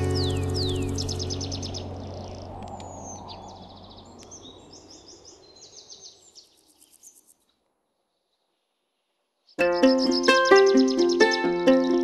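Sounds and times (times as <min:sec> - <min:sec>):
low hum: 0:00.0 - 0:04.8
songbirds chirping: 0:00.0 - 0:12.0.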